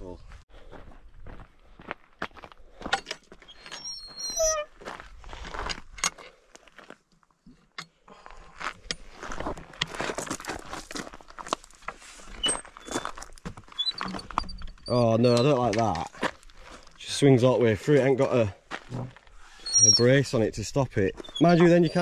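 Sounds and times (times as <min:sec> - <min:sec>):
footsteps on gravel: 0:00.5 - 0:03.5, 0:04.7 - 0:07.0, 0:08.2 - 0:13.8, 0:15.6 - 0:19.5
high squeak: 0:03.4 - 0:04.7, 0:12.4 - 0:16.0, 0:19.5 - 0:20.3, 0:21.1 - 0:22.0.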